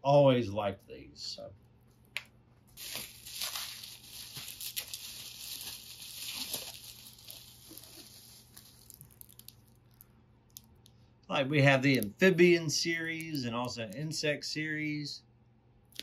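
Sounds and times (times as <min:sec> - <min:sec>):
bubble wrap rustling: 0:02.7 - 0:10.0.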